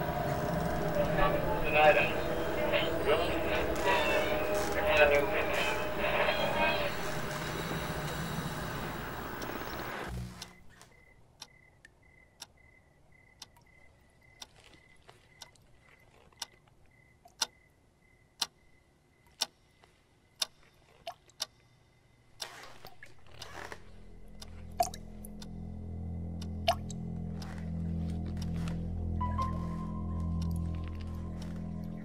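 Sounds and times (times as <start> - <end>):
low droning music: 0.0 - 10.8, 23.0 - 32.0
faint high pulsing tone: 0.0 - 11.1.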